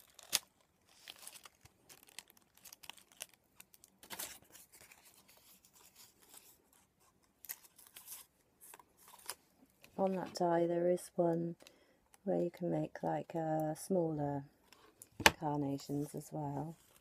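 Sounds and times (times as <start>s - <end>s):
paper petals rustling: 0.0s - 10.3s.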